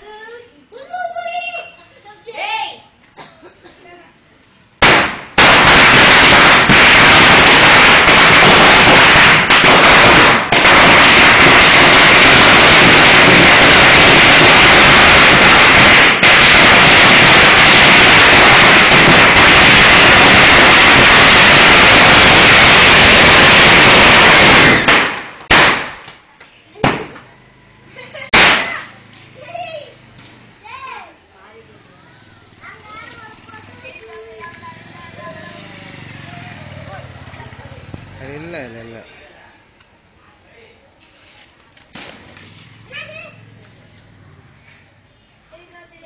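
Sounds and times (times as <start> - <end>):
firecracker string rapid bangs: 4.8 - 26.1, 26.8 - 27.3, 28.3 - 29.0.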